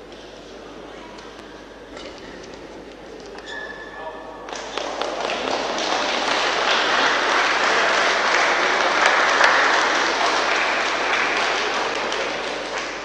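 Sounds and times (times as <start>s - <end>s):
spectators applauding: 4.5s - 13.0s.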